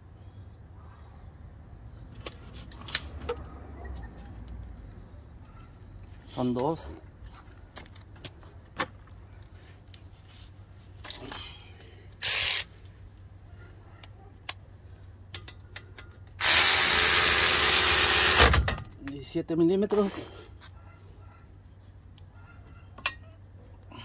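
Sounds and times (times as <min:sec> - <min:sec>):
pneumatic ratchet running: 0:12.2 - 0:12.7, 0:16.4 - 0:18.8.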